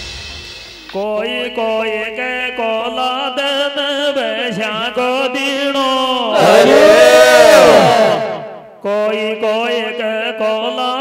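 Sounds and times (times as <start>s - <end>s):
man singing into a microphone: 0.9s - 6.4s, 8.8s - 11.0s.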